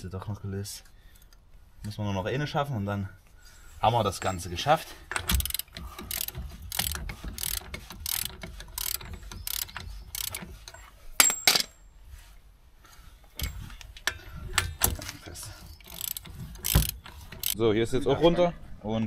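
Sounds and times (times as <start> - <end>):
socket ratchet clicking: 5.1 - 11.4, 15.7 - 17.6
sharp metallic clicks: 5.1 - 11.8, 13.4 - 17.6.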